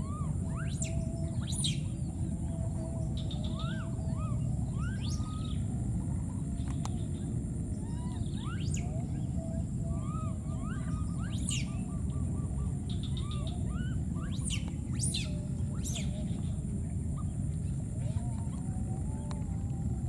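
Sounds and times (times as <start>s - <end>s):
faint high whine: 0.0s - 20.0s
steady low rumble: 0.0s - 20.0s
baby monkeys chirping and squealing: 7.9s - 8.8s, 10.0s - 11.8s.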